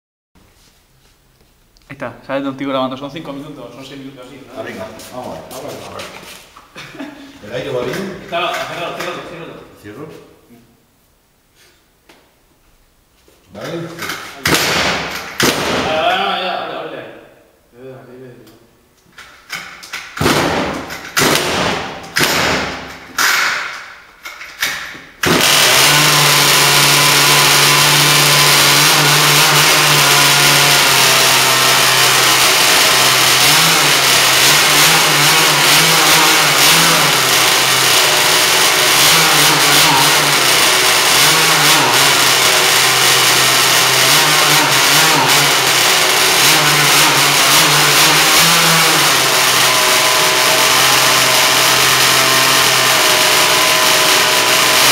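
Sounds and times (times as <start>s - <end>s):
two-stroke engine cranking and running: 25.2s - 54.9s.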